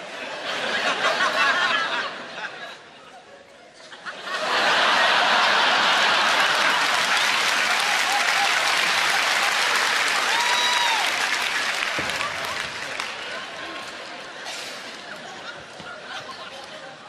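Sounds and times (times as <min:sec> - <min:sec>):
theatre audience applauding: 0:04.7 - 0:14.3.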